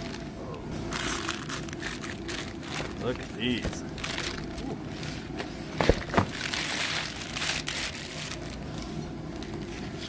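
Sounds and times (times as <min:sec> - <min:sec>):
plastic wrapping crinkling: 0:00.9 - 0:04.7, 0:05.8 - 0:09.6.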